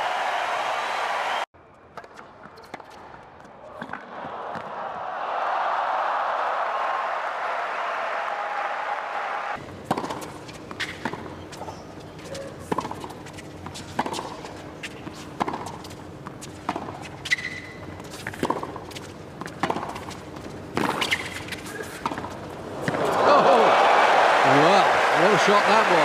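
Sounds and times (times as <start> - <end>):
applause: 0.0 - 1.5, 5.6 - 9.6, 23.2 - 26.0
shoes squeaking on court: 2.0 - 3.1, 9.7 - 23.2
tennis ball bouncing: 9.8 - 11.8, 12.6 - 23.1.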